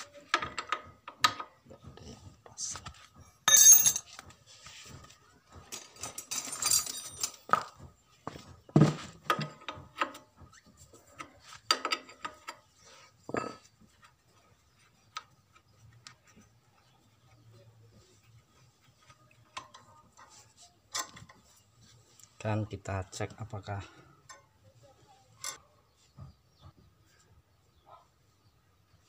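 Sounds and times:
spanner clinking on metal fitting: 3.5 - 4.1.

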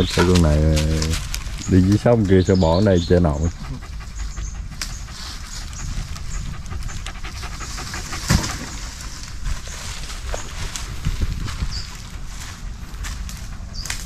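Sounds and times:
dog panting: 2.6 - 9.4.

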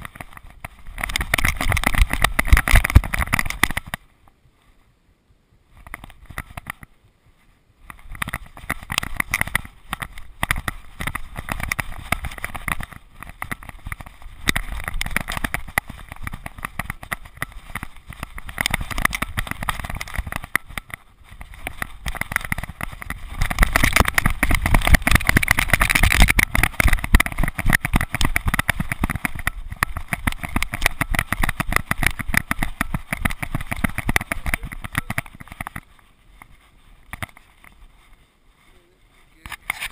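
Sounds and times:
camera housing jolting and rubbing: 0.0 - 4.0, 7.9 - 38.1, 39.4 - 39.9.

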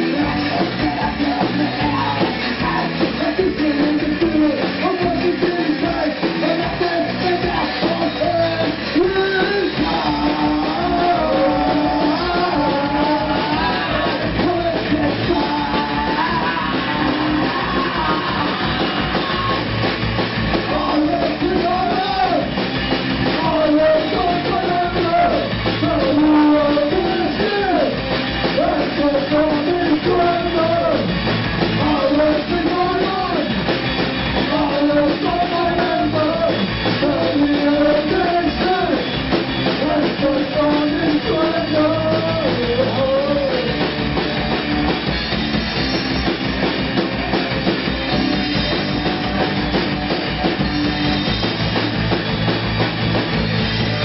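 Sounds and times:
man singing: 0.0 - 19.9, 20.5 - 22.6, 23.2 - 33.6, 34.4 - 44.0
live rock band playing: 0.0 - 54.0.

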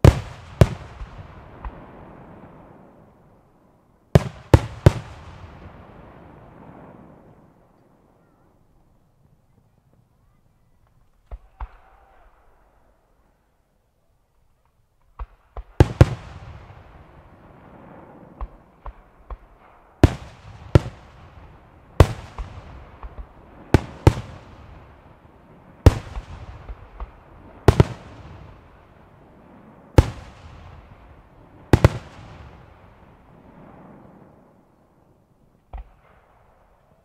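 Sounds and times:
fireworks bangs with echo: 0.0 - 3.0, 4.1 - 7.5, 15.1 - 34.6
small fireworks pops: 9.2 - 12.6, 14.3 - 16.7, 18.3 - 21.3, 22.0 - 24.9, 25.8 - 28.6, 35.6 - 37.0.

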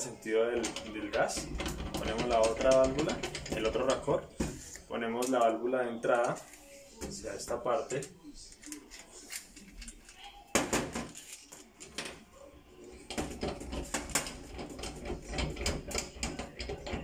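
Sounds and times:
metal fittings clicking and clinking: 0.6 - 4.2.

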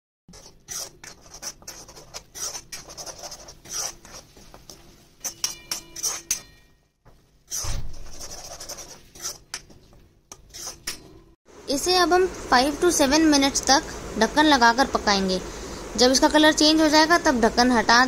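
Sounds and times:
spatula scraping frying pan: 0.3 - 6.6, 7.5 - 9.6, 10.3 - 11.0.

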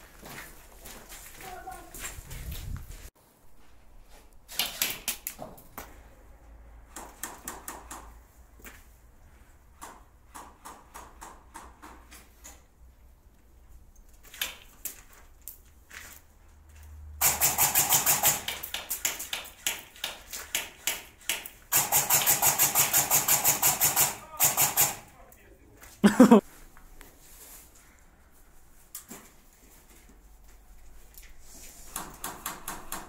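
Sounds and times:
airsoft rifle firing bursts: 17.2 - 18.6, 21.2 - 25.2.

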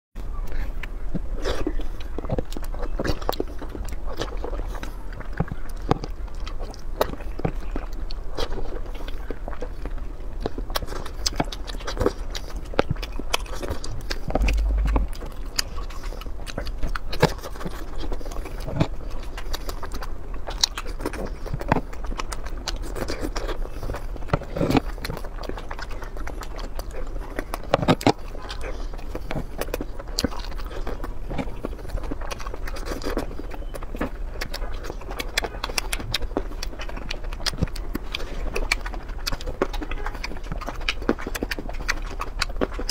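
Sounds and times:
chewing and biting food: 0.2 - 42.9
wet mouth clicks and smacks: 0.4 - 42.9
low hum: 14.0 - 16.2.

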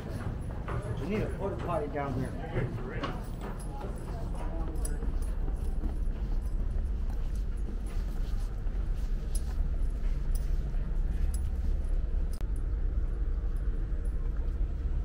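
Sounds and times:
footsteps on wooden boardwalk: 0.0 - 12.4
steady low rumble: 0.0 - 15.0.

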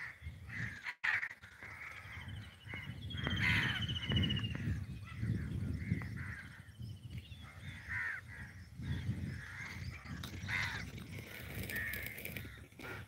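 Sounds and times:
crows cawing: 0.0 - 3.9, 7.5 - 13.0.

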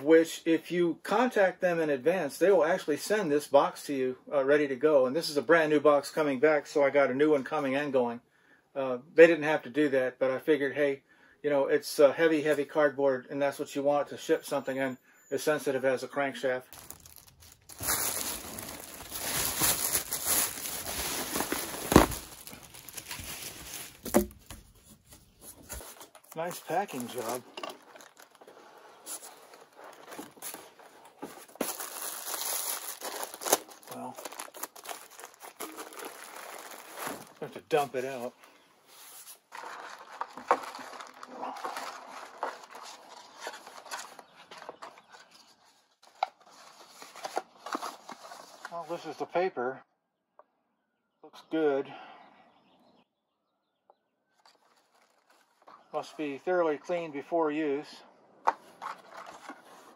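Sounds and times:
plastic film crinkling: 16.6 - 38.3, 39.0 - 44.8, 54.4 - 55.9
paper rustling: 16.7 - 48.7, 54.4 - 55.9, 58.5 - 59.9.

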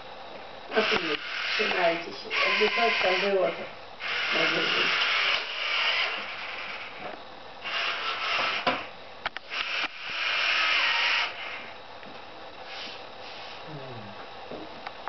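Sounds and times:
toy excavator arm grating: 0.7 - 7.0, 7.6 - 8.8, 9.5 - 11.7.

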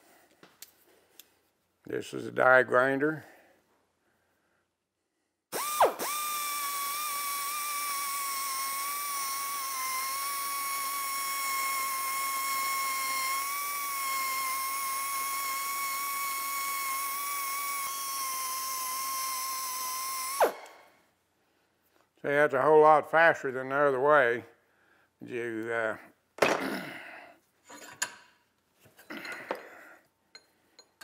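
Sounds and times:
die grinder whining: 5.6 - 20.8.

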